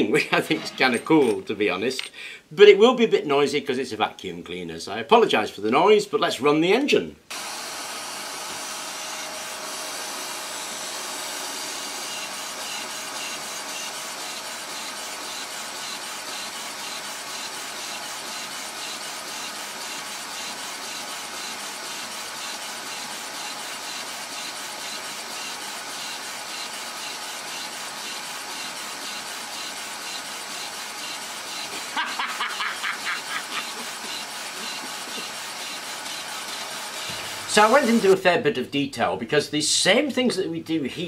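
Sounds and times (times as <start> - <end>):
vacuum cleaner hissing: 7.3 - 38.2.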